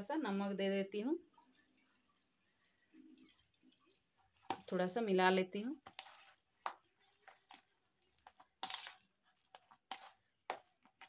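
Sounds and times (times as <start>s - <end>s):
fingers squishing mashed potato: 5.7s - 11.0s.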